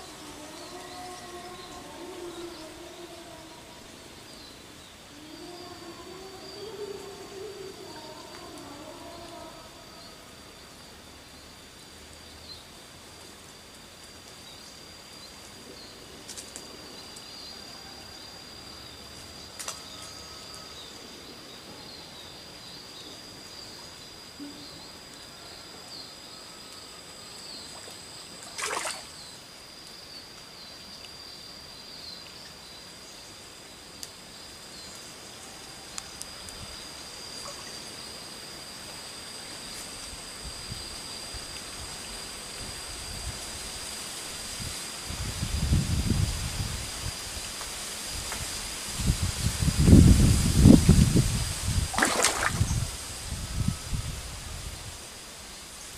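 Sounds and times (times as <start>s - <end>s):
high insect drone: 0.0s - 55.9s
stream water trickling: 27.6s - 29.6s, 51.8s - 53.1s.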